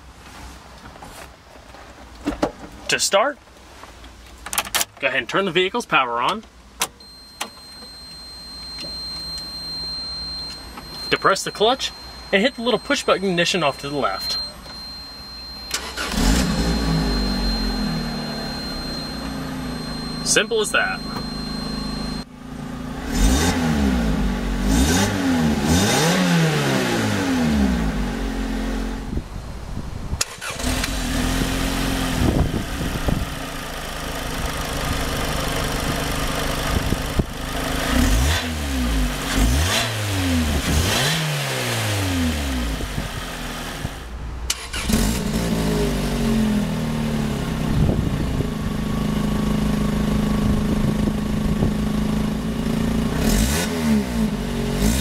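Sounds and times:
car engine revving: 0:08.2 - 0:29.1, 0:30.4 - 0:32.9, 0:37.6 - 0:48.0, 0:50.4 - 0:55.0.

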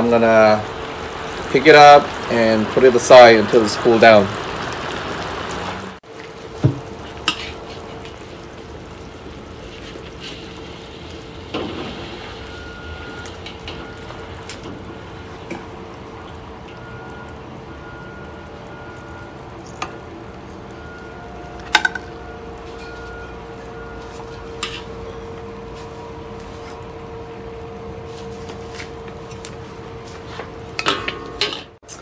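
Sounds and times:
liquid sizzling and bubbling: 0:00.0 - 0:32.0
spatula scraping wok: 0:07.2 - 0:08.0, 0:24.1 - 0:25.1.

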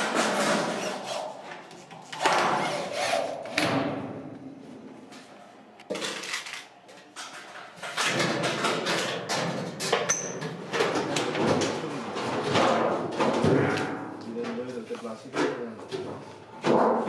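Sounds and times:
metal tub clattering and scraping: 0:07.3 - 0:14.6.

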